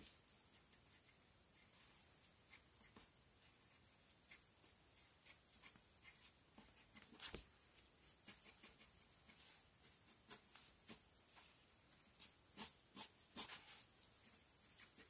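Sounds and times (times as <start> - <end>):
pencil scratching on paper: 0.0 - 15.0.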